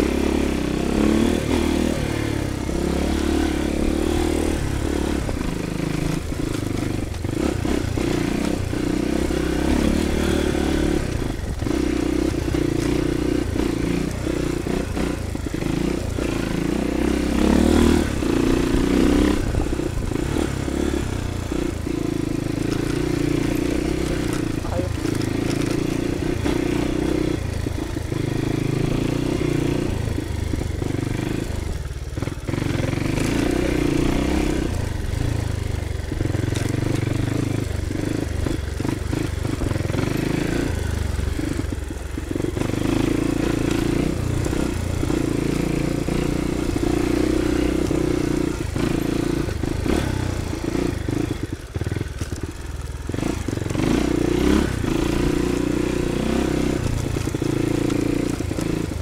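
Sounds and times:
dirt bike engine running: 0:00.0 - 0:59.0.

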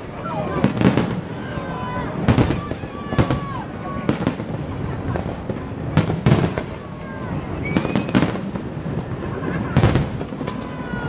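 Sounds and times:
fireworks bangs: 0:00.0 - 0:11.0
rising firework whistle: 0:06.6 - 0:11.0.

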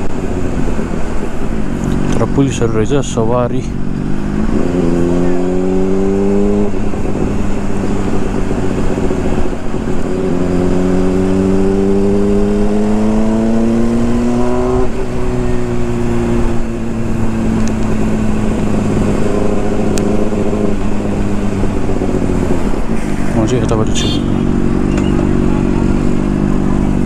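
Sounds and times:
motorcycle engine accelerating: 0:00.0 - 0:27.0
wind and road noise: 0:00.0 - 0:27.0.

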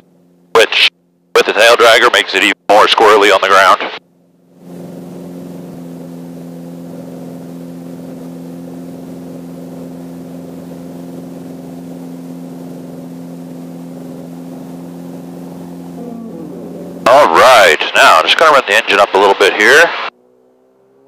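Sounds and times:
aircraft piston engine running: 0:03.2 - 0:20.1.

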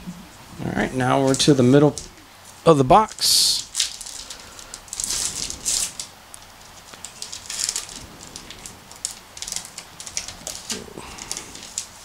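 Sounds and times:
plastic foil wrapper crinkling and tearing: 0:03.0 - 0:12.0.

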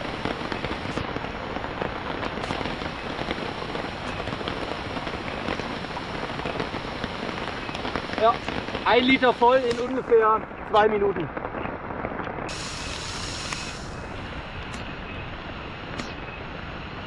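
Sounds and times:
rain falling on tarp and leaves: 0:00.0 - 0:17.0.

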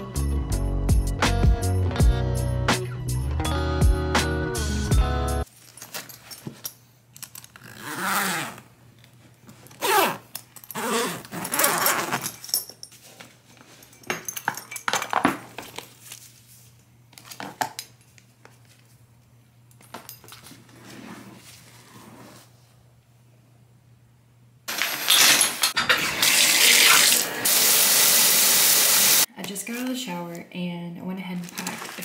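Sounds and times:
metal clips clicking and jangling: 0:05.6 - 0:07.6, 0:10.3 - 0:12.9
suitcase zipper: 0:07.4 - 0:08.7, 0:09.7 - 0:12.5, 0:20.6 - 0:22.6.

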